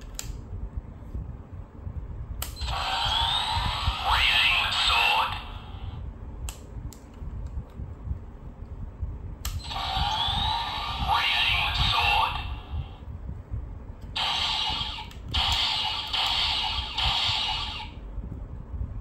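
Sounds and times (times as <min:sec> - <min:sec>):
electronic toy sound effects: 0:02.6 - 0:05.8, 0:09.6 - 0:12.7, 0:14.2 - 0:18.0.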